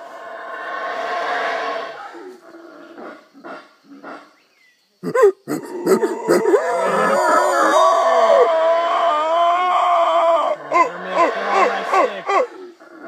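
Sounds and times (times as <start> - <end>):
howler monkeys howling: 5.0 - 13.0.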